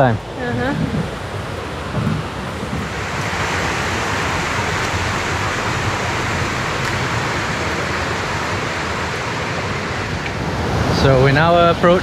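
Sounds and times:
river water rushing over rocks: 0.0s - 12.0s.

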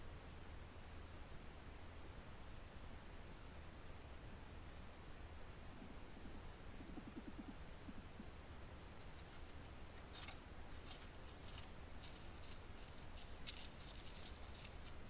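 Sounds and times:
paws rustling through dry leaves: 9.0s - 15.0s.

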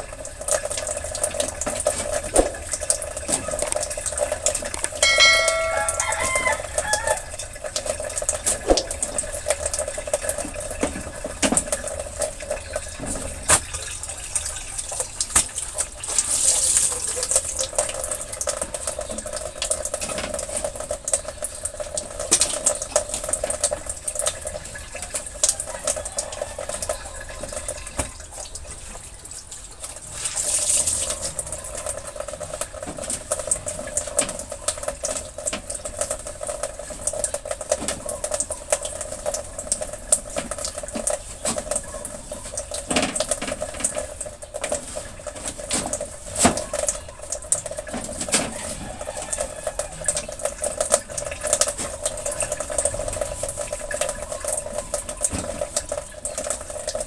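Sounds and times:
rooster crow: 5.0s - 7.5s, 25.5s - 27.6s, 48.3s - 50.3s.

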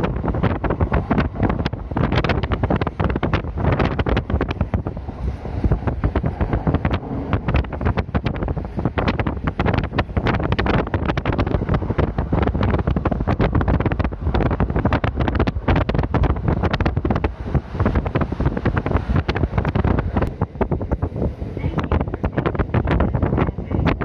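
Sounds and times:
train running noise: 0.0s - 24.0s
wind buffeting microphone: 0.0s - 24.0s.

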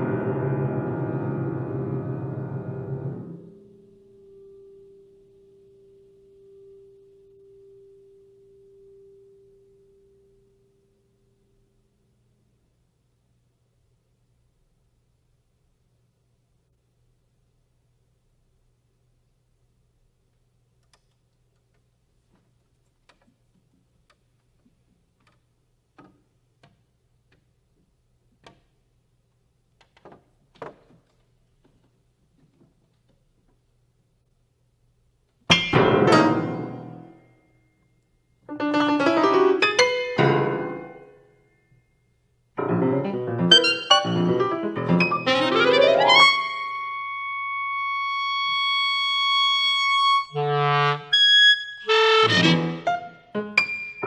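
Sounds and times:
piano chords: 0.0s - 10.5s, 35.5s - 37.6s, 38.5s - 41.8s, 42.5s - 47.8s, 51.9s - 54.0s
faint steady hum: 1.0s - 51.1s
clarinet high note: 43.5s - 53.3s.

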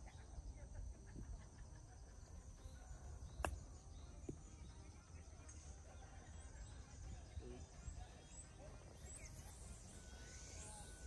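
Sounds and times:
insect drone: 0.0s - 11.0s
faint tap: 3.4s - 3.6s.

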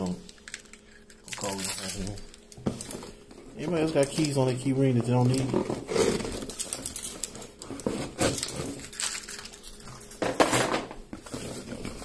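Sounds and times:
keys clinking on a key ring: 0.4s - 2.5s, 8.8s - 10.3s.

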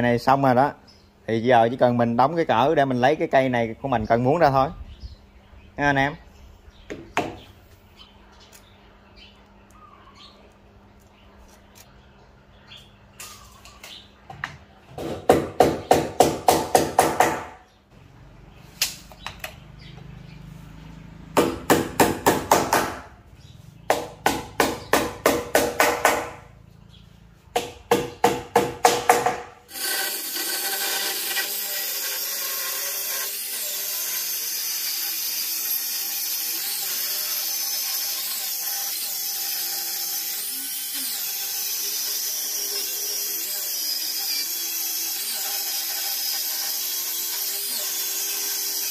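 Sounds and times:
hammer driving nails: 15.0s - 17.6s, 21.4s - 23.0s, 23.9s - 26.4s, 27.6s - 31.5s
circular saw whining: 29.7s - 48.9s.

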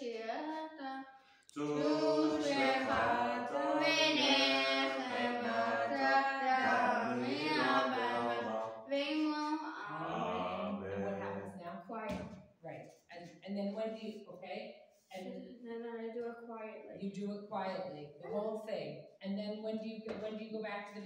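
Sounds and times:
boy chanting a prayer: 1.6s - 11.5s.

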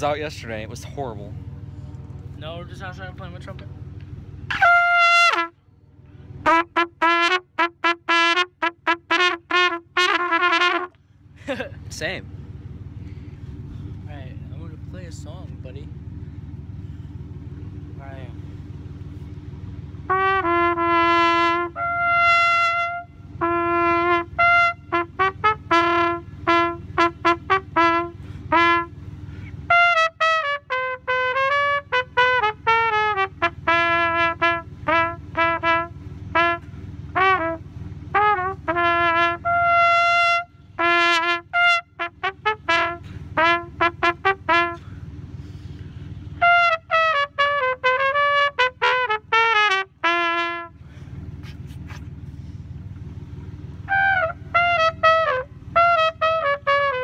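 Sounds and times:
trumpet playing a tune: 4.5s - 5.6s, 6.4s - 11.0s, 20.0s - 44.9s, 46.3s - 50.8s, 53.8s - 57.0s.

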